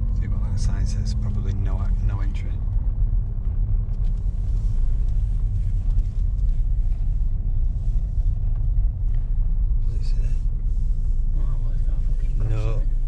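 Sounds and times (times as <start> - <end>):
car engine rumble inside cabin: 0.0 - 13.0.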